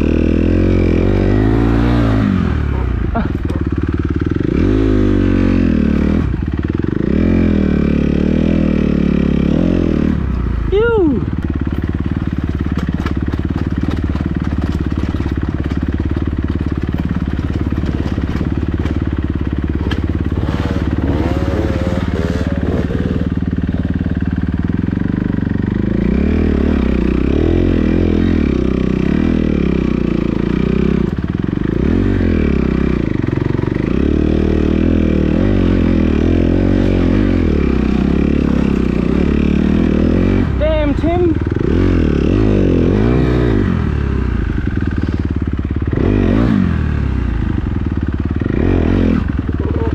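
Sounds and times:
dirt bike engine revving: 0.0s - 49.9s
knocks and rattles: 11.7s - 22.8s.

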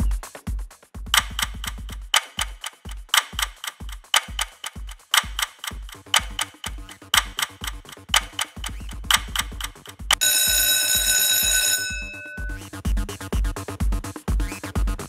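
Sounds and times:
electronic dance beat: 0.0s - 10.5s, 11.9s - 15.0s
clock-like ticks: 1.1s - 10.3s.

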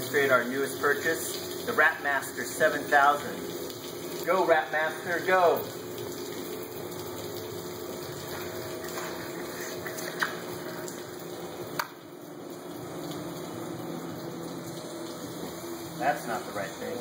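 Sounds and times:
pump rushing noise: 12.6s - 17.0s.

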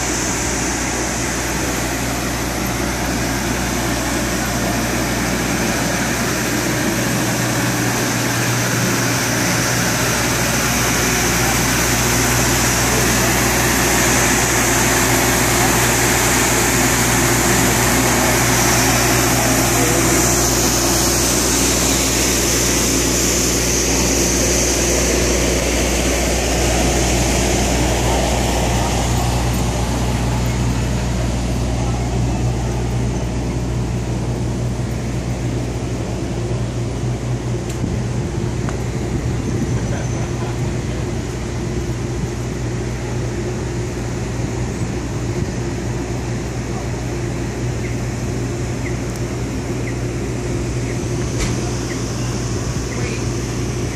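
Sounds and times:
machine drone: 0.0s - 53.9s.

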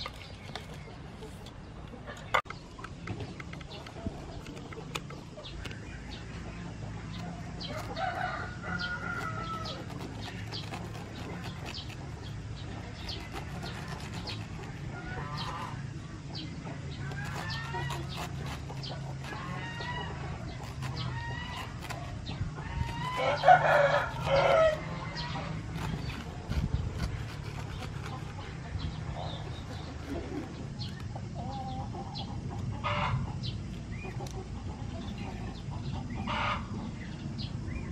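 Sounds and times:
chickens clucking and crowing: 0.0s - 37.8s
knife cutting on wooden board: 8.8s - 15.8s, 17.0s - 31.1s.

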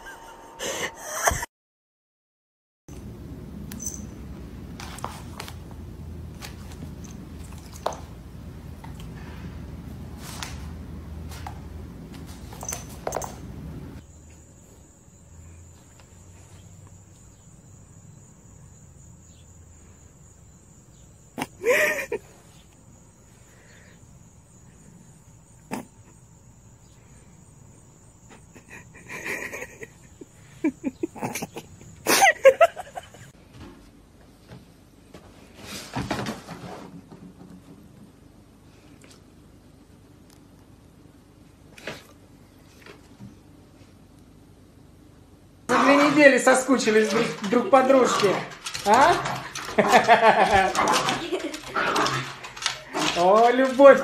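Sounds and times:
low room hum: 2.9s - 54.0s
paws scrabbling on laminate floor: 4.6s - 13.6s, 46.8s - 54.0s.

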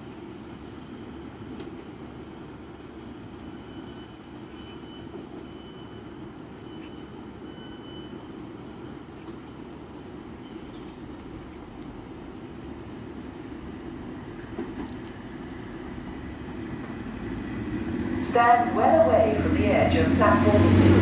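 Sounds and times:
diesel engines idling: 15.4s - 21.0s.

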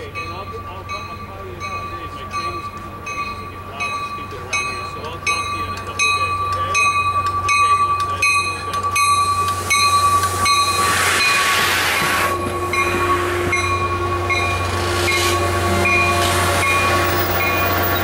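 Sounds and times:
bell ringing: 0.0s - 18.0s
train cars rolling past: 0.0s - 18.0s
rushing noise: 9.5s - 18.0s.

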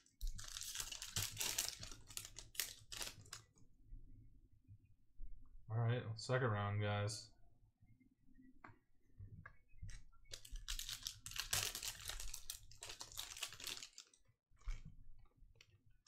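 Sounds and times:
foil wrapper tearing and crinkling: 0.1s - 3.5s, 10.3s - 14.2s.

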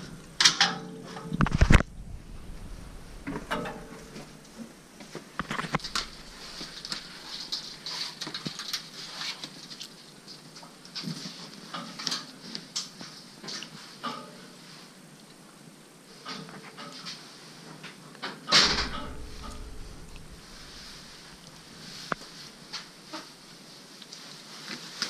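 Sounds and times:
small knocks and rustles: 0.0s - 14.8s, 16.2s - 25.0s
footsteps: 1.3s - 9.8s, 18.6s - 23.6s.

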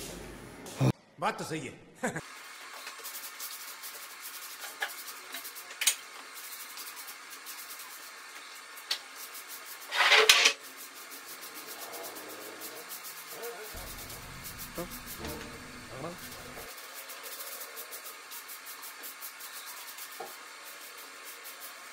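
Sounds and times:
rubbing and scraping: 9.9s - 10.6s.

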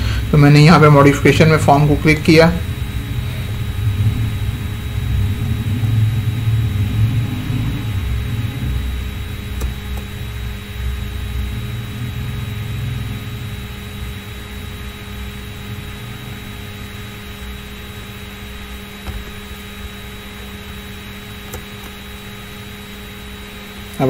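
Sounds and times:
electrical hum and hiss: 0.0s - 24.0s
low rumble: 2.6s - 9.5s.

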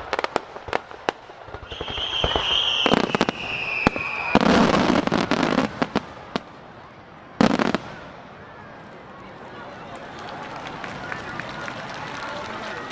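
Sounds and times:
fireworks bangs: 0.0s - 8.9s
fireworks crackling: 0.0s - 12.9s
high whistle: 1.6s - 4.6s.

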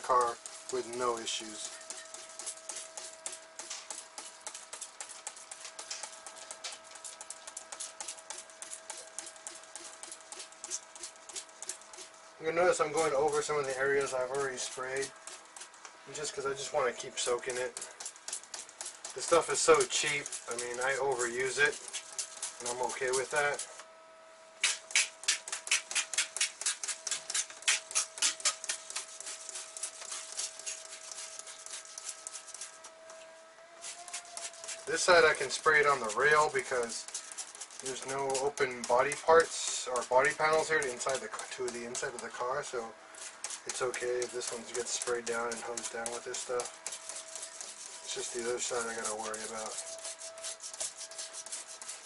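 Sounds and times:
spray bottle hissing sprays: 0.1s - 12.2s, 24.6s - 32.8s, 33.8s - 42.3s, 43.2s - 52.0s
spray bottle hissing: 24.6s - 32.8s.

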